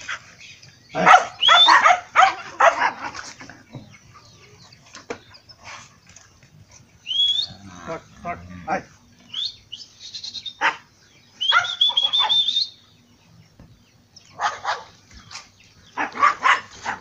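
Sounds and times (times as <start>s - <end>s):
dogs barking: 0.9s - 3.4s, 10.5s - 12.5s, 14.3s - 17.0s
high drawn-out call: 11.4s - 12.8s.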